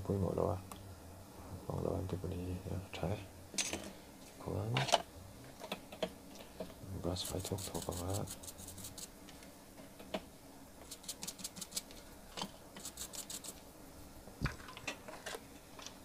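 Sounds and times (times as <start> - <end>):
metal tool scraping circuit board: 7.2 - 9.1, 12.8 - 13.6.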